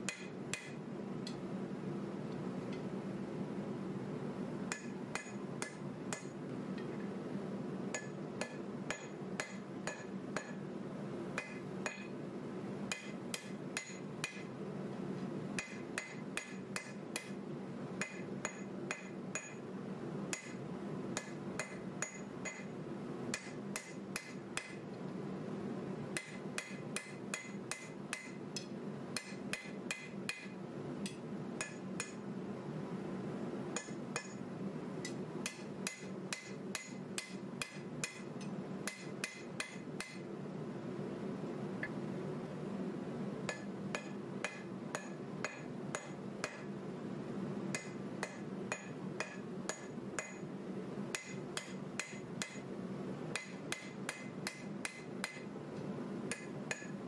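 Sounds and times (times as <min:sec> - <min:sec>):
hammer striking steel on anvil: 0:00.0 - 0:00.8, 0:04.7 - 0:06.4, 0:07.9 - 0:10.6, 0:11.4 - 0:12.1, 0:12.9 - 0:14.5, 0:15.6 - 0:17.4, 0:18.0 - 0:19.6, 0:20.3 - 0:20.6, 0:21.2 - 0:22.7, 0:23.3 - 0:24.8, 0:26.2 - 0:32.2, 0:33.8 - 0:34.4, 0:35.0 - 0:40.2, 0:43.5 - 0:46.7, 0:47.7 - 0:50.5, 0:51.1 - 0:52.6, 0:53.3 - 0:55.5, 0:56.3 - 0:57.0.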